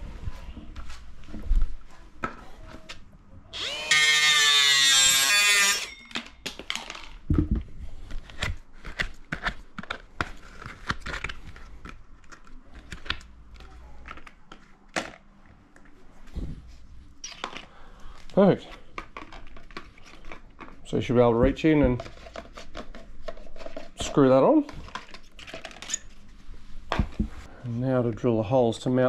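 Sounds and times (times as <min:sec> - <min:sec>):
power tool cutting plastic: 0:03.5 - 0:06.0.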